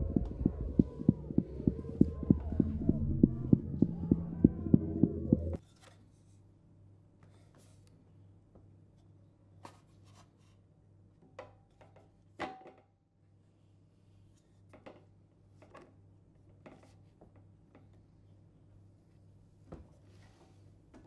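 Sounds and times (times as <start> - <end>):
faint low hum: 0.0 - 9.6.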